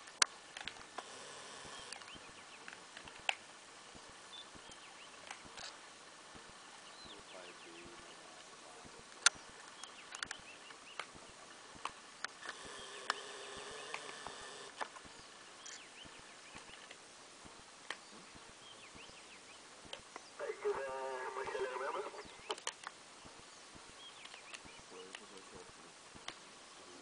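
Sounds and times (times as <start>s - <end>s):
faint steady tone: 0.0s - 27.0s
faint bird chirps: 1.2s - 2.7s, 6.7s - 11.5s, 12.1s - 16.9s, 18.0s - 25.6s
sharp clicks and snaps: 22.5s - 23.0s.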